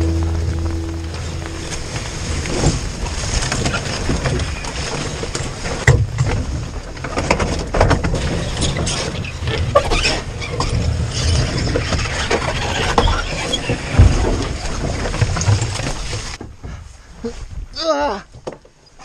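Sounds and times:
canoe hull knocks and rattles: 0.0s - 9.2s, 13.0s - 16.8s
low rumble of movement: 0.0s - 9.8s.

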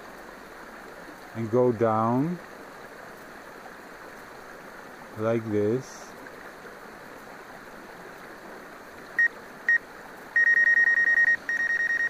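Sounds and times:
short high beeps: 10.4s - 12.0s.

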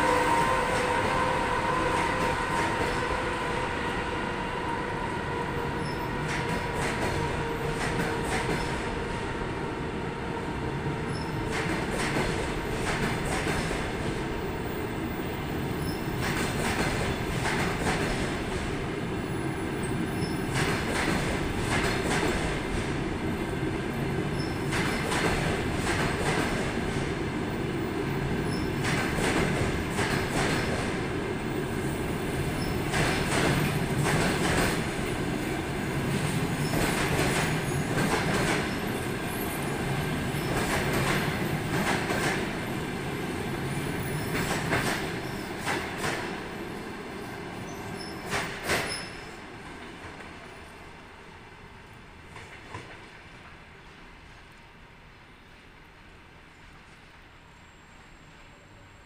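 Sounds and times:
train coaches rumbling: 0.0s - 54.3s.

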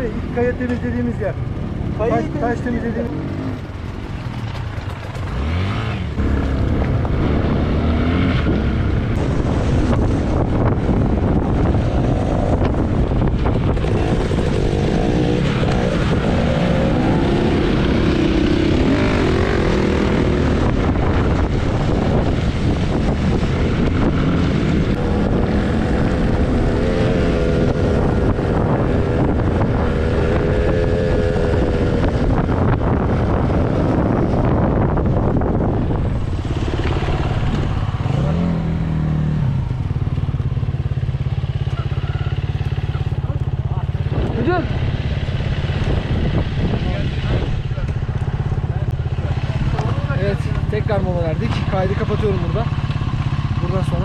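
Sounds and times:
wind on microphone: 5.0s - 41.0s, 43.8s - 52.2s
dirt bike engine revving: 5.2s - 54.0s.

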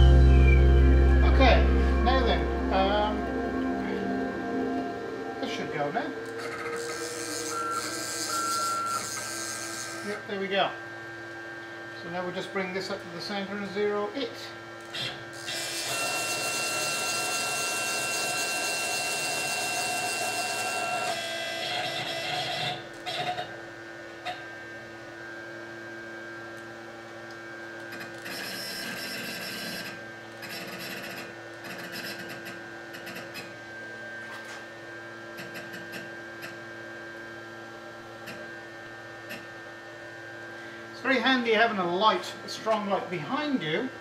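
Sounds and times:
stepper motors whining: 0.0s - 10.6s, 14.8s - 23.5s
steady hum: 0.0s - 17.3s, 32.9s - 44.0s.

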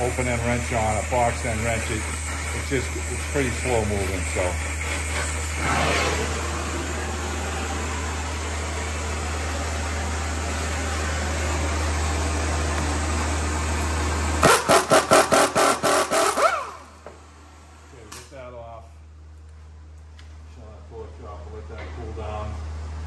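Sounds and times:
air tool bursts: 0.0s - 6.3s, 14.4s - 17.0s
torch roaring: 0.0s - 16.9s.

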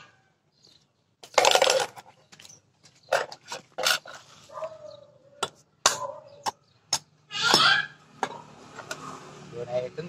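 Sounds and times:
dog barking: 4.5s - 6.4s.

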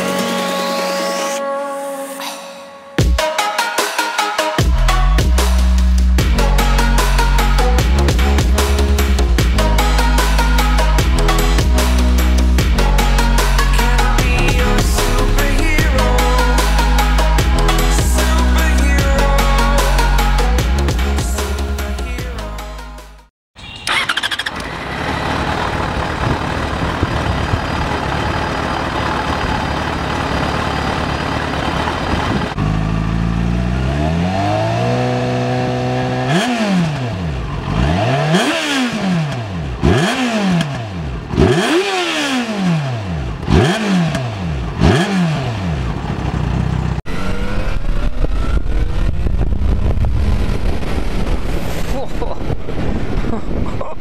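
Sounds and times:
motorcycle engine revving: 23.6s - 51.6s
steady rushing noise: 47.1s - 54.0s
wind on microphone: 47.1s - 54.0s.

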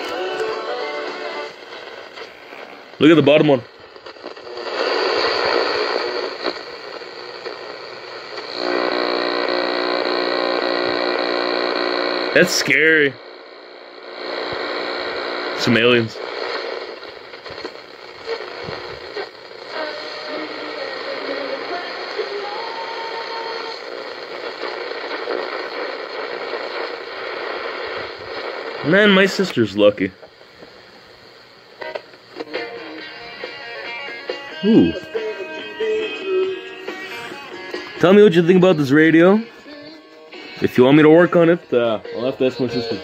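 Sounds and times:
radio static hiss: 0.0s - 43.0s
droning buzz: 3.9s - 28.8s.

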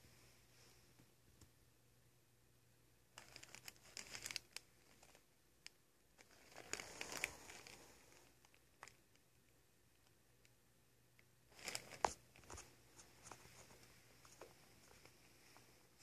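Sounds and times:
papers crinkling and rustling: 3.2s - 5.2s, 6.2s - 9.0s, 11.5s - 15.2s.

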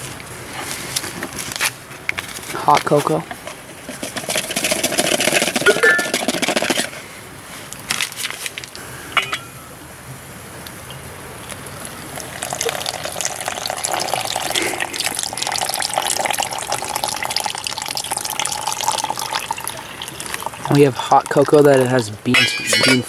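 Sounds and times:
water pouring into metal can: 3.9s - 6.9s, 12.1s - 21.9s.

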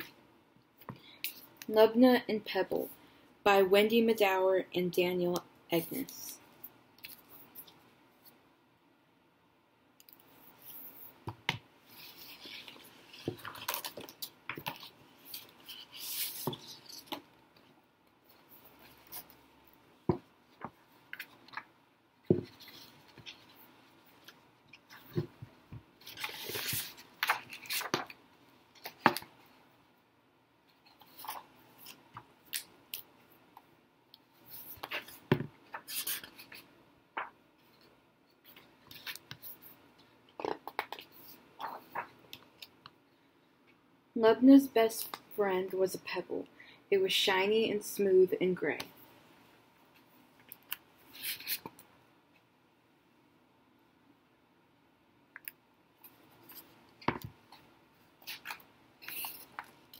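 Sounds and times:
paper pages turning: 11.9s - 17.7s, 26.0s - 28.2s, 34.4s - 39.8s, 40.4s - 42.8s, 50.6s - 51.9s, 58.2s - 59.9s.

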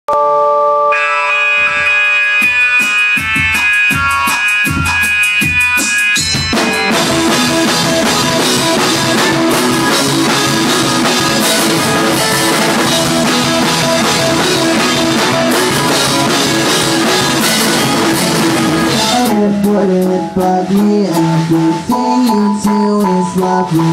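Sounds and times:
keyboard chords: 0.1s - 23.9s
rock band playing: 0.9s - 23.9s
cymbals crashing: 1.0s - 19.3s
bass drum beat: 2.8s - 23.9s.

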